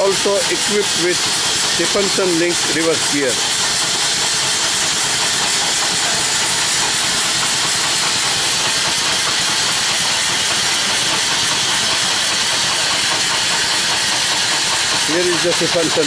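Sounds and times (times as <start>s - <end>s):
hiss of escaping steam: 0.0s - 16.0s
steam engine running: 0.0s - 16.0s.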